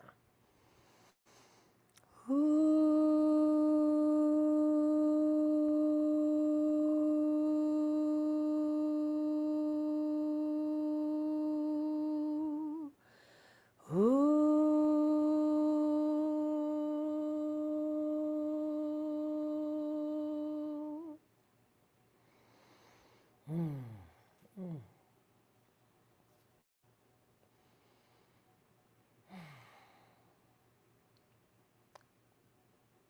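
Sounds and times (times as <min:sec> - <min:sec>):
woman humming long notes: 0:02.1 - 0:13.0, 0:13.8 - 0:21.2, 0:23.5 - 0:25.0
woman sighing: 0:23.4 - 0:25.0, 0:29.3 - 0:30.2.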